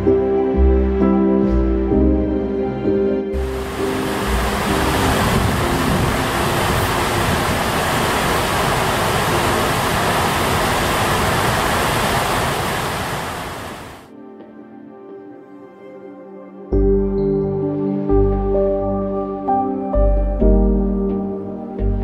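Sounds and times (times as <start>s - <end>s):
music: 0.0s - 7.5s, 14.1s - 22.0s
loud rushing water: 3.4s - 14.1s.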